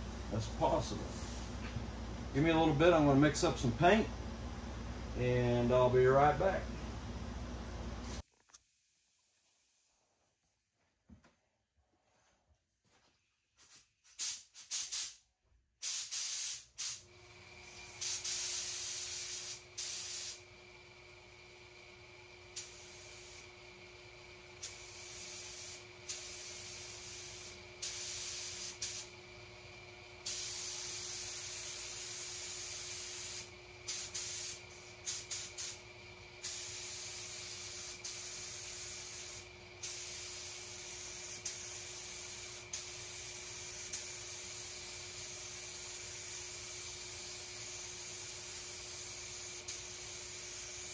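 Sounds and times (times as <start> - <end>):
spray gun hissing: 0.0 - 1.8, 15.8 - 17.0, 17.8 - 20.4, 22.6 - 23.6, 24.6 - 29.1, 30.2 - 35.8, 36.4 - 50.9
steady hum: 0.0 - 8.6.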